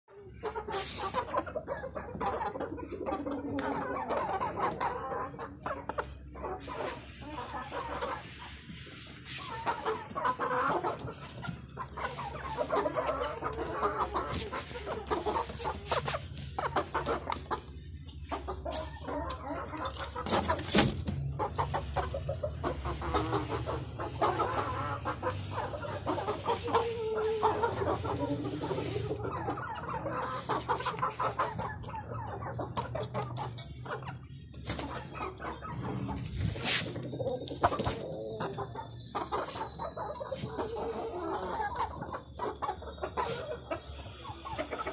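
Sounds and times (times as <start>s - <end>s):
chickens clucking: 0.0s - 44.9s.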